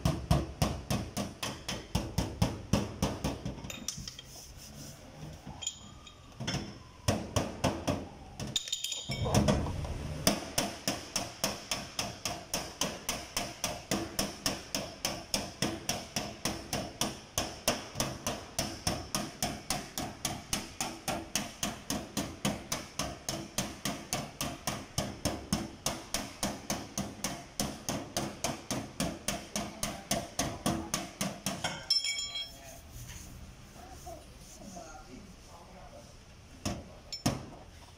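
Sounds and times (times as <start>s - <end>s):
hammer tapping on sheet metal: 0.0s - 3.8s, 10.2s - 32.1s.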